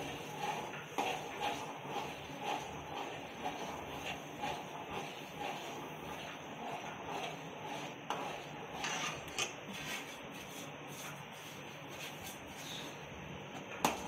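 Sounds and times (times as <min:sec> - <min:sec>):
spoon scraping pan: 0:00.0 - 0:10.1.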